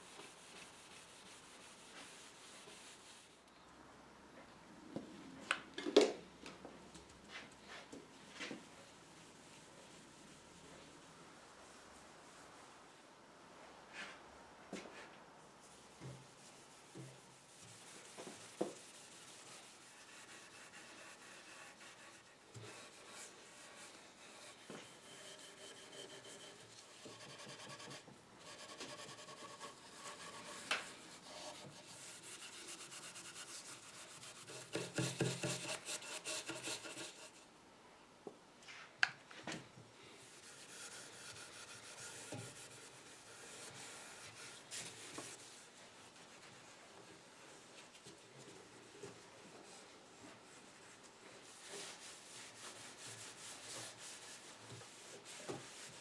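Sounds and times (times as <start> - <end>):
steel wool scrubbing wood: 0.0 - 3.3, 16.2 - 37.4, 40.2 - 46.6, 49.7 - 56.0.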